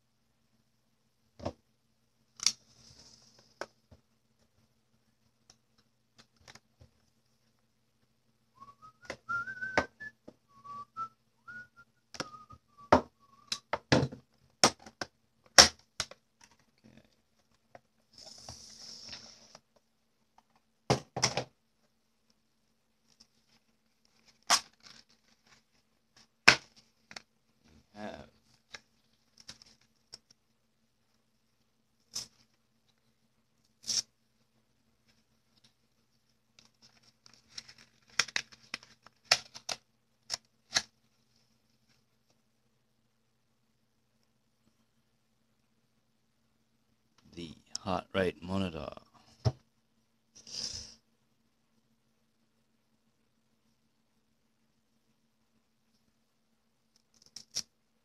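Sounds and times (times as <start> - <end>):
person whistling a tune: 8.6 - 13.6
packaging rustle: 36.6 - 39.8.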